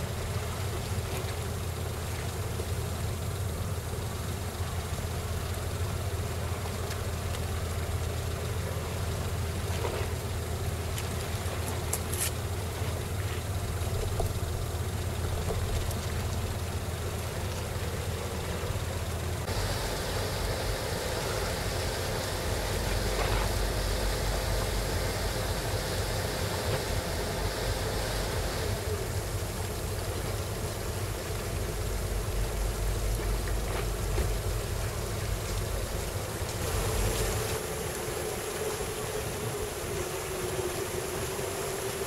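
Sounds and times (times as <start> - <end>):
faint hiss: 0.0 - 42.0
low engine hum: 0.0 - 42.0
higher hiss: 19.4 - 42.0.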